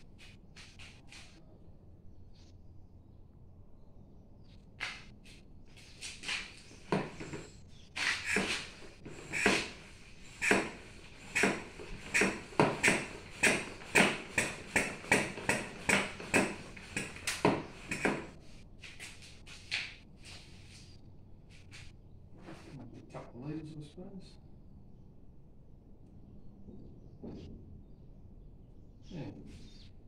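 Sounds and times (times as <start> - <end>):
hand pump strokes: 6.4 - 18.4.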